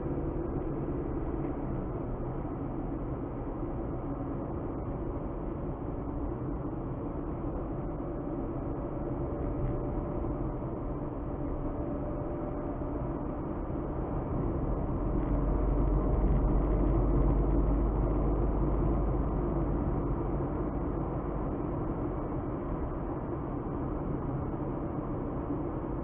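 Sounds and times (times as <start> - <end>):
tyre road noise: 0.0 - 26.0.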